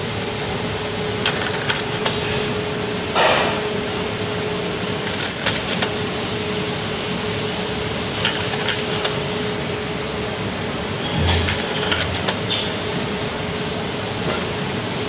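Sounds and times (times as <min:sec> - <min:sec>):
machine motor hum: 0:00.0 - 0:14.2
sharp mechanical clicks: 0:01.2 - 0:02.2, 0:05.0 - 0:06.0, 0:08.2 - 0:09.2, 0:11.2 - 0:12.6.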